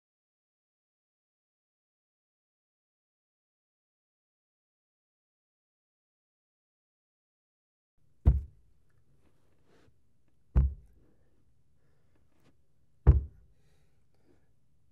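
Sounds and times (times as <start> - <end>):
loud heavy knocks: 8.3 - 8.6, 10.6 - 10.9, 13.1 - 13.4.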